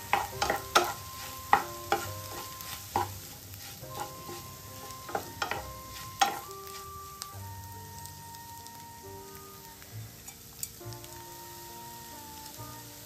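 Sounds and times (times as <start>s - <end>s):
spatula knocking against pan: 0.0s - 3.2s, 4.0s - 6.5s
spatula scraping eggs in pan: 0.0s - 7.3s
light sizzle: 0.0s - 13.0s.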